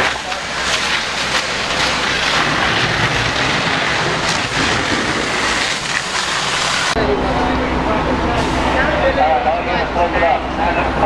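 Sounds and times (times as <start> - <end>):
hose water spraying: 0.0 - 7.0
low rumble: 0.0 - 9.0.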